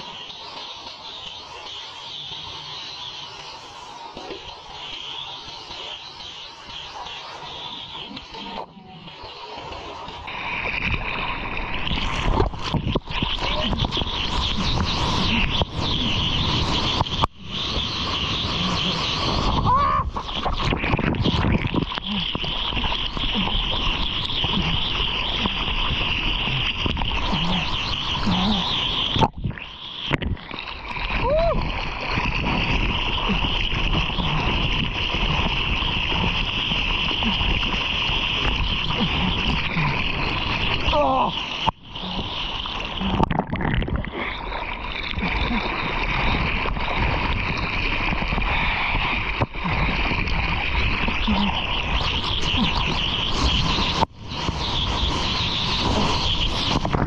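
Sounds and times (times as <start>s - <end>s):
water rushing and splashing: 0.0s - 57.0s.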